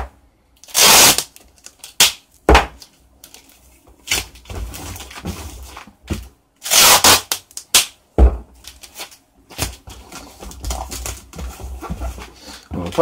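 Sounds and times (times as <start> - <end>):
adhesive tape ripping off roll: 0.6 - 2.2, 6.6 - 8.0.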